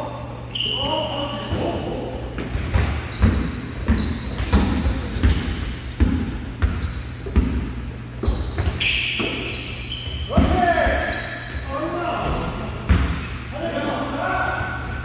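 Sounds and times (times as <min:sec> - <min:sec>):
sneakers squeaking on court: 0:00.2 - 0:15.0
basketball bouncing on wooden floor: 0:02.4 - 0:11.6.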